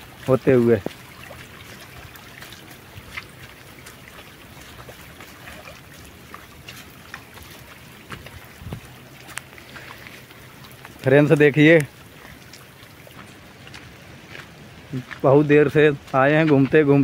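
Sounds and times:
splashing footsteps on wet stones: 0.0s - 17.0s
water running over rocks: 0.0s - 17.0s.

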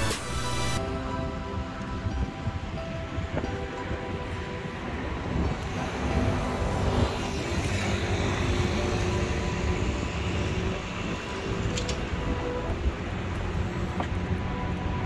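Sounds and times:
low rumble of traffic: 0.0s - 15.0s
moped passing: 4.3s - 15.0s.

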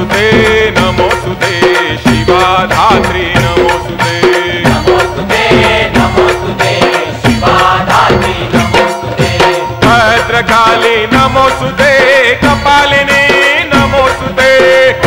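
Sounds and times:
music with drum beat: 0.0s - 15.0s.

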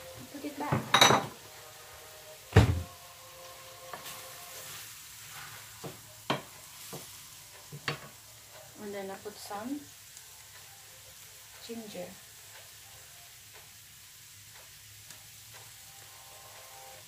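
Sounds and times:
pork sizzling in a skillet: 0.0s - 17.0s
wooden spoon knocking pan: 5.8s - 7.1s.

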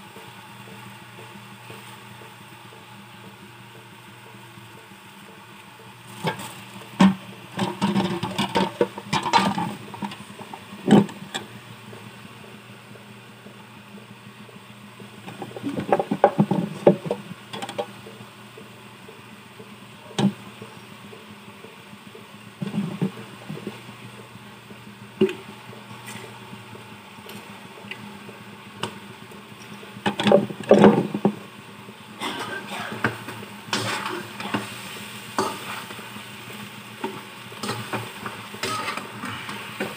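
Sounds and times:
food simmering in frying pan: 0.0s - 39.9s
knocks and clatter of handling: 6.2s - 11.4s, 30.0s - 31.4s
metal spatula scraping pan: 38.6s - 39.7s.

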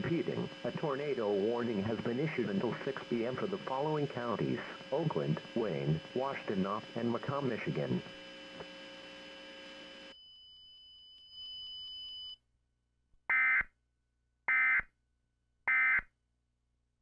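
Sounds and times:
faint hum and hiss: 0.0s - 10.2s
thin high whine: 0.0s - 12.4s.

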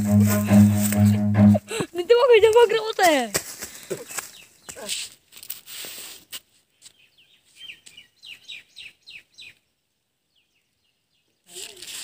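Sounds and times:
crackling rustles: 2.4s - 7.0s, 11.5s - 12.0s
bird chirping: 6.8s - 11.5s.

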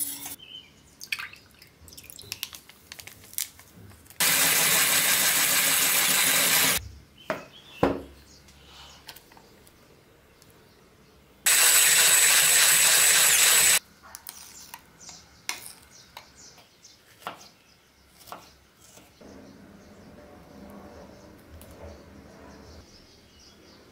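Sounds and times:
electric mixer whirring: 4.2s - 6.8s, 11.5s - 13.8s.

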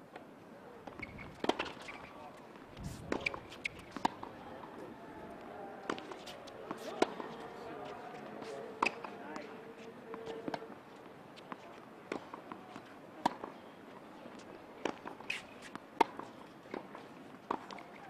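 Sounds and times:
tennis ball hit and bouncing: 0.8s - 2.1s, 3.0s - 4.8s, 5.8s - 10.7s, 11.4s - 13.6s, 14.8s - 18.0s.

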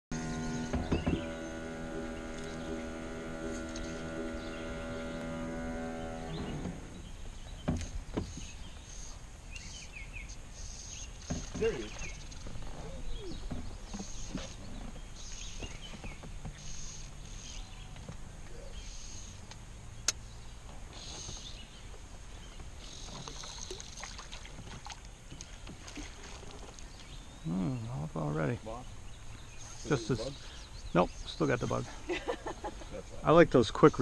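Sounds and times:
oars dipping in water: 0.1s - 10.0s, 10.6s - 27.4s
water sloshing along boat hull: 0.1s - 27.5s.

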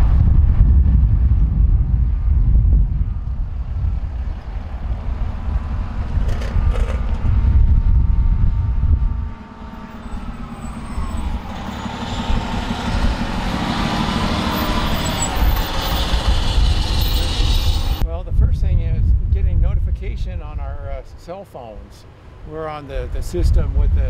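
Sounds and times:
pickup towing trailer rumbling by: 0.0s - 18.0s
fire engine diesel engine passing: 3.0s - 7.8s, 8.4s - 18.0s.

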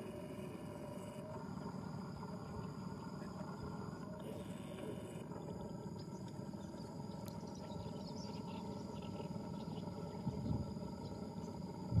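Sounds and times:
high insect drone: 0.0s - 12.0s
low rumbling noise: 9.5s - 12.0s.

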